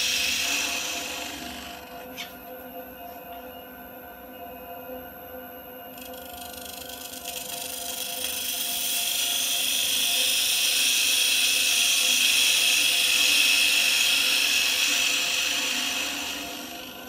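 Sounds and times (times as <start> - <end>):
turning tool hissing on wood: 0.0 - 1.7, 8.8 - 16.9
lathe humming: 0.0 - 2.4, 6.0 - 17.0.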